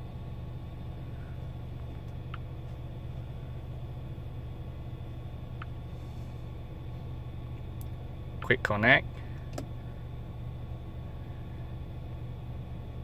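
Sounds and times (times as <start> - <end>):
car cabin hum: 0.0 - 13.0.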